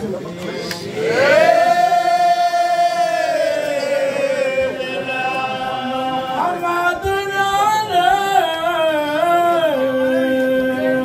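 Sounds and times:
men chanting a devotional song: 0.5 - 11.0
lower voice singing: 1.0 - 11.0
voice through a microphone: 4.3 - 11.0.

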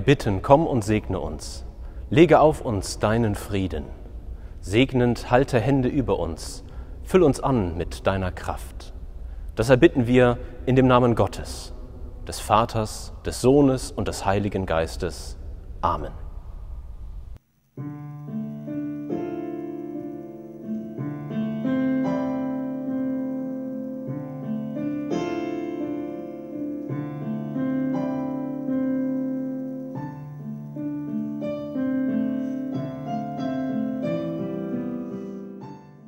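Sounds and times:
slow solo piano: 17.8 - 36.0.

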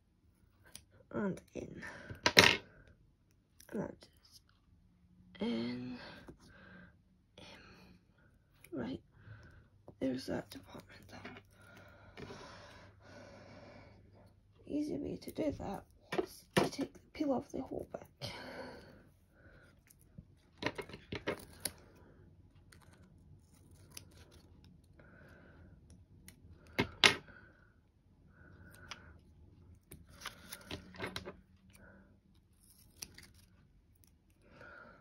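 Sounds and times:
adhesive backing peeling rustle: 32.5 - 34.1.

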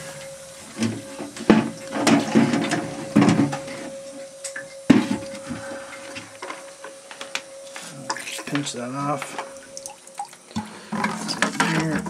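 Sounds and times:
thin steady hum: 0.0 - 12.0
plastic buckets knocking: 0.8 - 3.9, 10.5 - 12.0.

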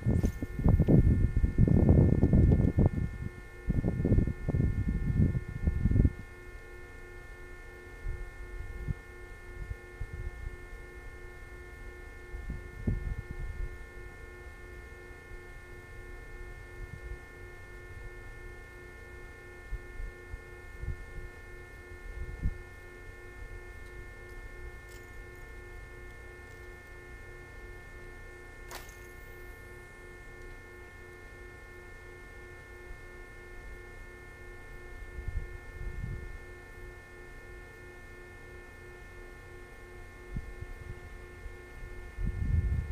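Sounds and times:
wind rumble on microphone: 0.0 - 6.4, 7.9 - 14.6, 15.4 - 18.3, 19.6 - 22.8, 34.9 - 36.5, 40.3 - 42.9
steady electrical hum: 0.0 - 42.9
sharp click: 28.6 - 29.3.

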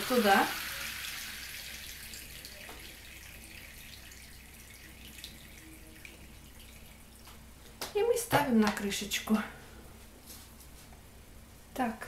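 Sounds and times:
water trickling and dripping: 0.0 - 7.4.

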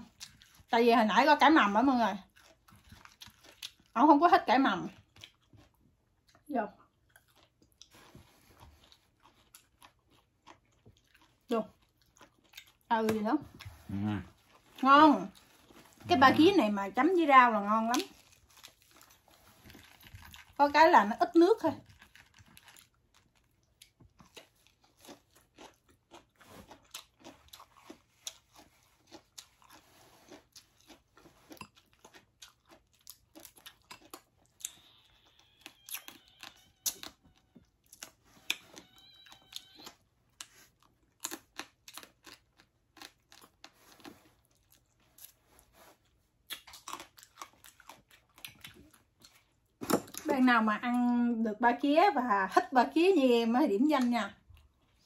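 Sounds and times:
chewing and crunching crab: 0.0 - 0.8, 1.7 - 50.3, 54.0 - 55.0.

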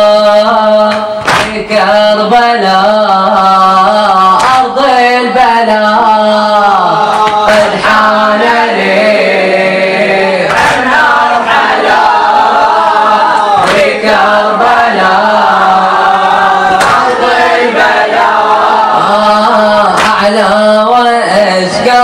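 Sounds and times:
boy chanting into a microphone: 0.0 - 11.4, 18.8 - 22.0.

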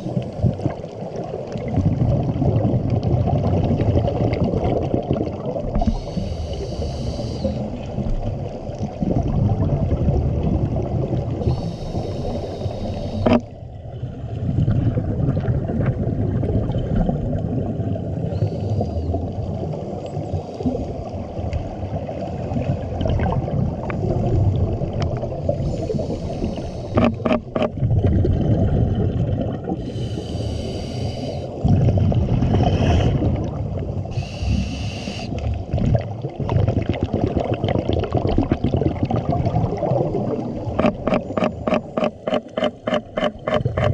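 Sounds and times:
diver inhaling through regulator: 5.8 - 7.9, 11.4 - 13.5, 18.2 - 19.2, 25.5 - 27.6, 29.8 - 31.6, 34.1 - 35.5
bubbling exhalations: 22.9 - 41.4
sharp clicks: 40.8 - 43.9.

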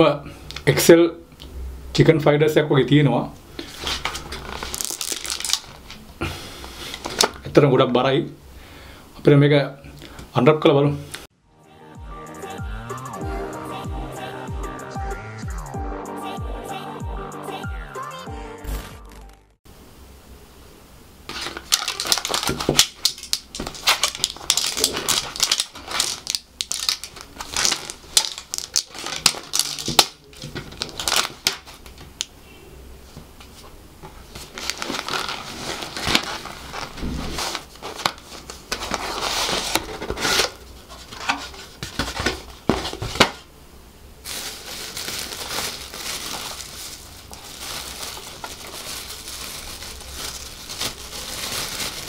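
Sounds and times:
paper wrapping tearing: 3.6 - 6.0, 21.3 - 31.9, 34.4 - 42.3, 44.3 - 52.0
plastic bag rustling: 3.6 - 7.4, 21.3 - 32.0, 33.5 - 43.5, 44.2 - 52.0.

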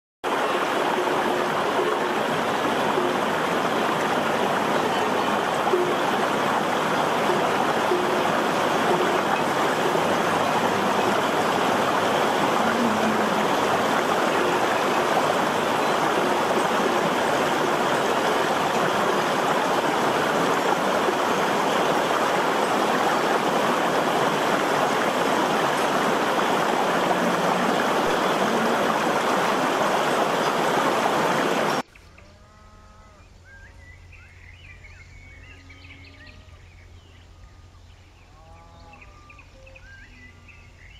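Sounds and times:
river rushing over rocks: 0.3 - 31.8.

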